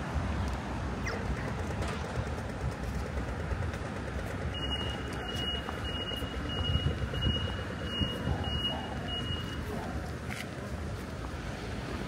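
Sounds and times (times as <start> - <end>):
street traffic rumble: 0.0 - 12.0
electronic warning beeper: 4.5 - 9.7.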